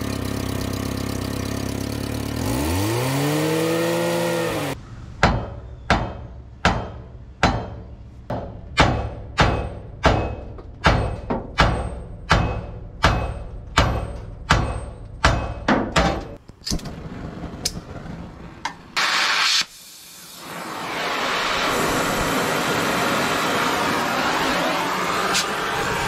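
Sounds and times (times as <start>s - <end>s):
cutting torch flame hissing: 19.0s - 26.0s
gas hissing: 19.0s - 26.0s.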